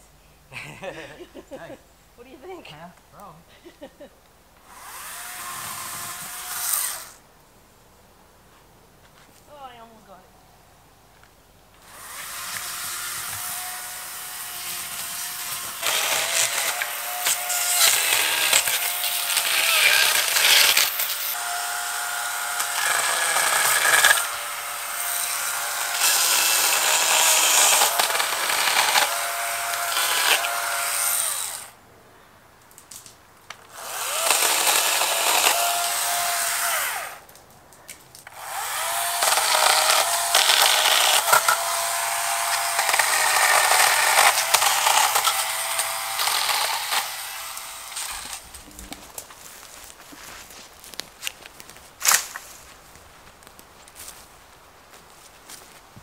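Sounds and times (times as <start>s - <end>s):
chainsaw cutting: 4.6s - 7.2s, 11.8s - 31.8s, 33.7s - 37.3s, 38.2s - 49.2s.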